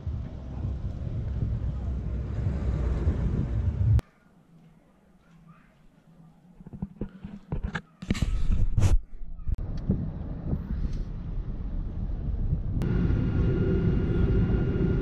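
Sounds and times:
low rumbling noise: 0.0s - 4.0s, 9.6s - 15.0s
airliner jet engines humming: 12.8s - 15.0s.

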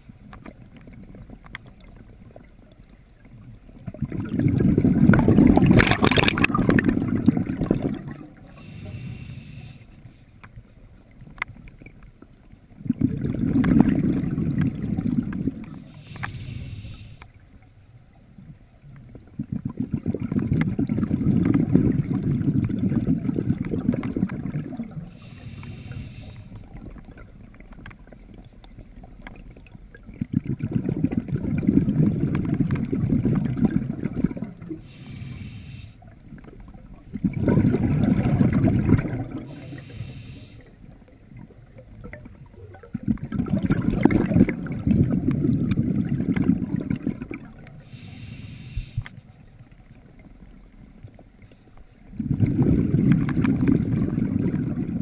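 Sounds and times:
exhaled bubbles rumbling underwater: 0.0s - 55.0s
inhalation hiss through breathing gear: 8.5s - 10.3s, 15.7s - 17.4s, 25.1s - 26.6s, 34.8s - 36.0s, 39.4s - 40.8s, 47.8s - 49.3s.

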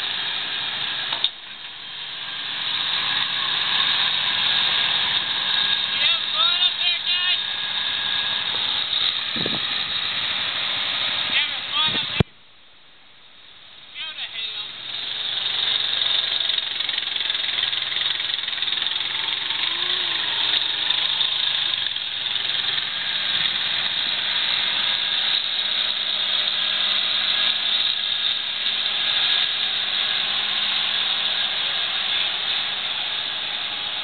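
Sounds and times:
tractor diesel engine running: 0.0s - 34.0s
steady hissing noise: 7.4s - 16.3s.

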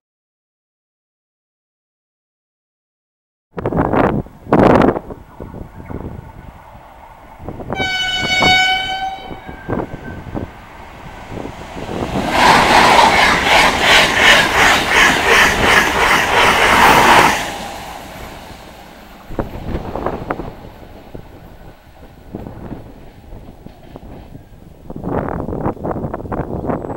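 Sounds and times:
train passing at speed: 3.6s - 26.9s
wheels beating over rails: 4.6s - 26.5s
train horn blast: 7.7s - 10.4s.

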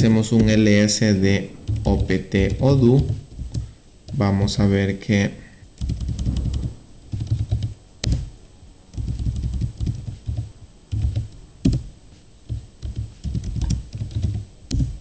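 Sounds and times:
typing on keyboard: 1.6s - 4.3s, 5.8s - 8.3s, 8.9s - 11.9s, 12.5s - 15.0s.

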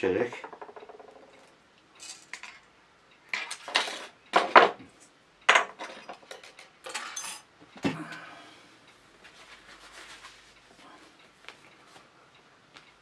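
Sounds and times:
metal tools clattering on table: 5.5s - 7.5s.

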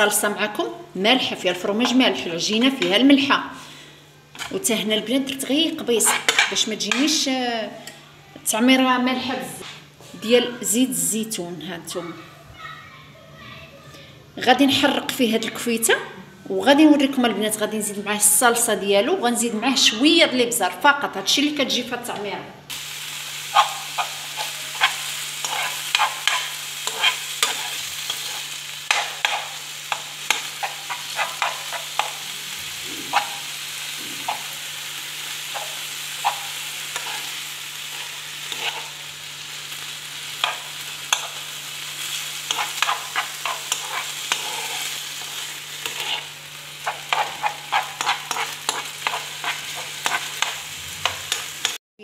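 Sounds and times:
metal spoon scraping a pan: 5.9s - 7.1s, 23.5s - 39.0s, 40.3s - 51.8s
meat sizzling in a frying pan: 22.7s - 51.8s.

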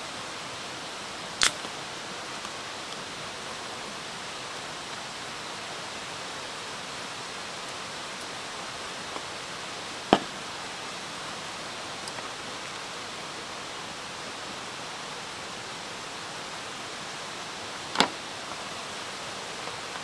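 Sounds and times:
steady hiss: 0.0s - 20.0s
drink can opening crack: 1.4s - 1.7s.

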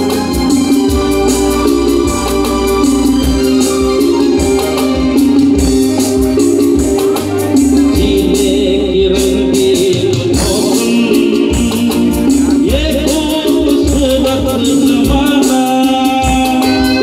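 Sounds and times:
electric guitars: 0.0s - 17.0s
keyboards: 0.0s - 17.0s
steady percussion beat: 0.0s - 17.0s
man singing: 6.8s - 17.0s.

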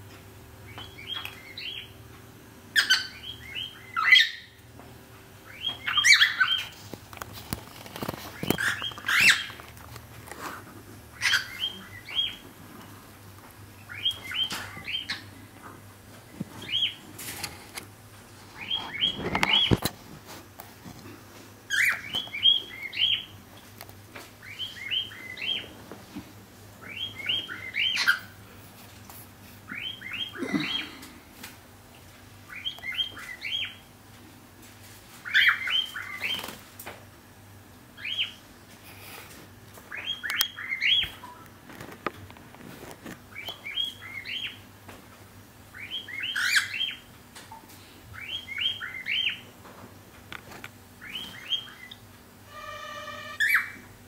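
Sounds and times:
cockatiel chirping: 2.8s - 4.6s, 5.5s - 6.7s, 8.6s - 9.6s, 11.2s - 12.4s, 26.8s - 28.4s, 45.8s - 47.0s, 51.0s - 52.0s, 52.6s - 53.8s.

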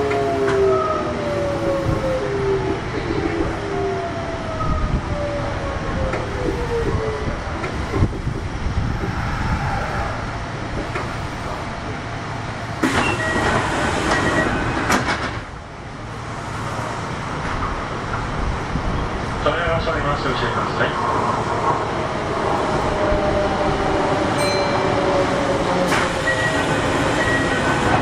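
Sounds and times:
wheel and rail noise: 0.0s - 28.0s
train inverter tones falling: 12.8s - 15.4s
high brake squeal: 26.2s - 27.7s.

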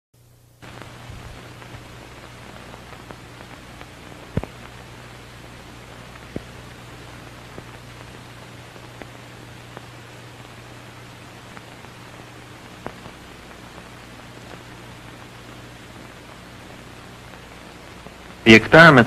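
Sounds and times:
film soundtrack hiss and hum: 0.2s - 19.0s
faint crackles: 0.4s - 19.0s
sharp pops: 0.6s - 8.2s.

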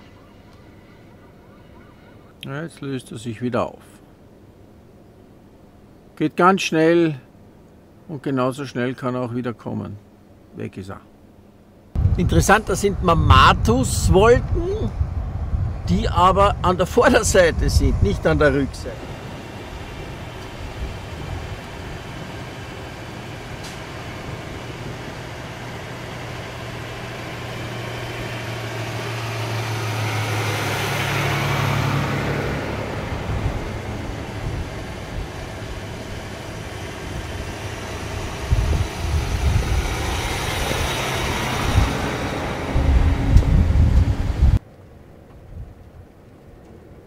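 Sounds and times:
semi truck driving past: 0.0s - 2.4s, 16.6s - 44.6s
wind gusting on microphone: 12.0s - 44.6s, 45.4s - 47.0s
dump truck driving by: 18.7s - 44.6s.

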